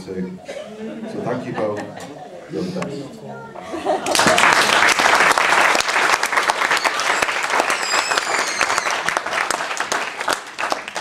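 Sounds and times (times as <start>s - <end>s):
audience applauding: 4.0s - 11.0s
high warbling whistle: 6.7s - 9.0s.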